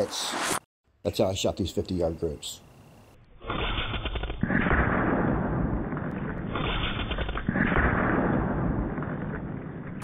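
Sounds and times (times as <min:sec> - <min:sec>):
air rifle shot: 0:04.4 - 0:06.7, 0:07.5 - 0:09.6.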